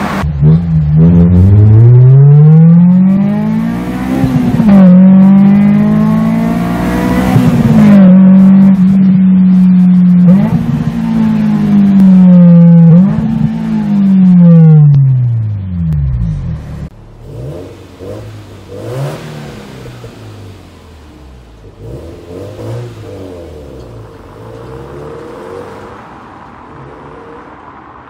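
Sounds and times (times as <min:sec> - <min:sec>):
car engine slowing down: 0:00.0 - 0:26.8
car engine revving: 0:00.0 - 0:28.0.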